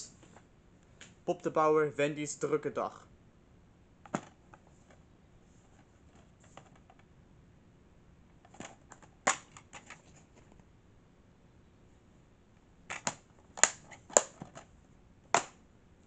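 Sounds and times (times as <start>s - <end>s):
plastic case clicks: 8.5s - 10.0s, 12.9s - 14.6s, 15.4s - 15.6s
plastic case snapping: 8.5s - 10.0s, 12.9s - 14.6s, 15.3s - 15.6s.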